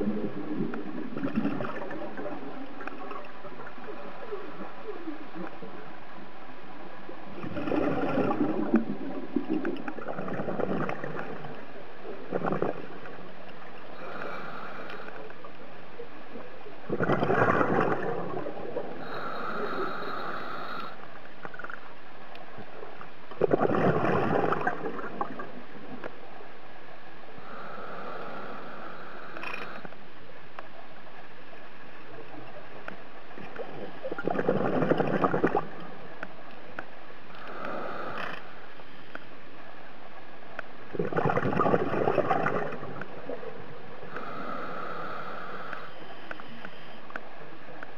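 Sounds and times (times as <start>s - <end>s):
exhaled bubbles rumbling: 0.0s - 5.9s, 7.1s - 13.4s, 16.4s - 19.6s, 23.4s - 26.1s, 33.3s - 36.0s, 40.9s - 43.6s
regulator inhale hiss: 13.9s - 15.3s, 19.0s - 21.1s, 27.4s - 30.0s, 37.3s - 39.2s, 44.1s - 47.0s.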